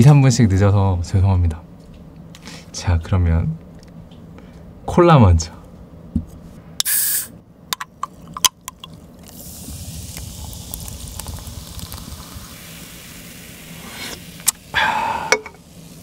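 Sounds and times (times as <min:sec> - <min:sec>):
cola fizzing in a glass: 0:08.0 - 0:16.0.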